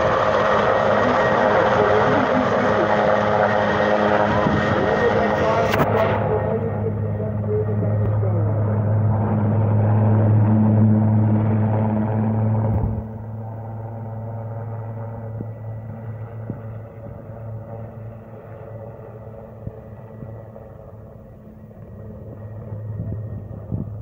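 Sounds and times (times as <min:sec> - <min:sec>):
faint turbine whine: 0:00.0 - 0:24.0
helicopter rotor drone: 0:00.0 - 0:24.0.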